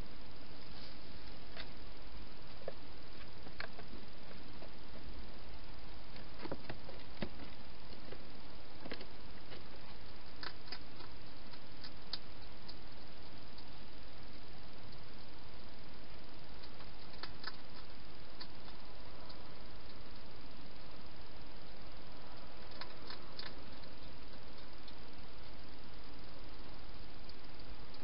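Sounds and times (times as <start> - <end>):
background hiss: 0.0 - 28.0
hedgehog feeding clicks and crunches: 8.8 - 15.3, 16.4 - 20.9, 21.7 - 28.0.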